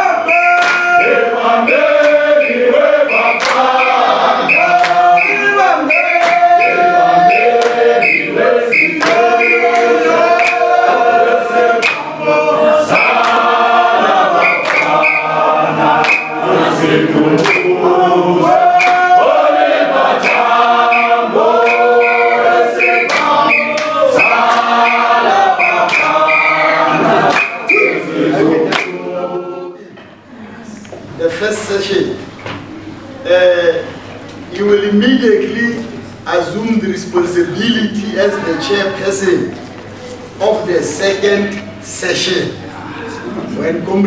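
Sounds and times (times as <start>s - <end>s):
group singing unaccompanied: 0.0s - 30.8s
hand claps: 0.6s - 0.9s, 2.0s - 2.2s, 3.2s - 3.8s, 4.7s - 5.1s, 6.1s - 6.6s, 7.3s - 7.8s, 9.0s - 10.6s, 11.8s - 12.1s, 13.0s - 13.5s, 14.5s - 15.0s, 16.0s - 16.4s, 17.4s - 17.7s, 18.8s - 19.1s, 22.9s - 25.1s, 25.7s - 26.3s, 27.2s - 27.7s, 28.7s - 29.0s.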